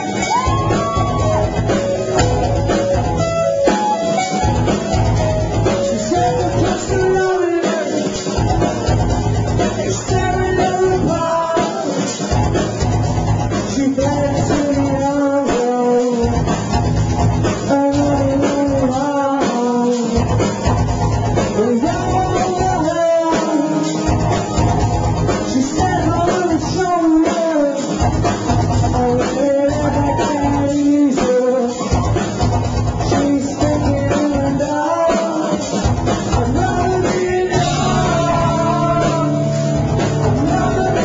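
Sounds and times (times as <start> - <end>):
drum kit: 0.0 - 41.0
guitar: 0.0 - 41.0
person singing: 5.6 - 8.8, 9.6 - 12.2, 13.6 - 16.6, 17.6 - 20.7, 21.4 - 32.3, 32.9 - 41.0.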